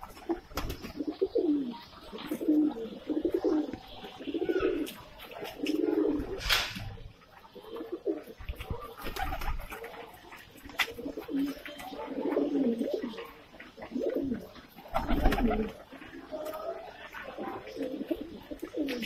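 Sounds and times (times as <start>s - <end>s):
pigeons cooing: 0.0s - 19.0s.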